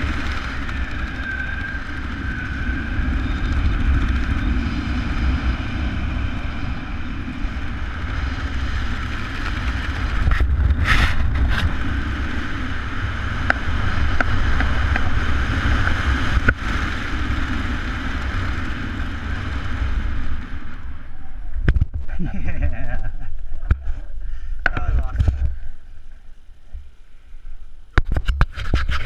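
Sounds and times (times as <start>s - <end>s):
wind rushing over microphone: 0.0s - 26.9s.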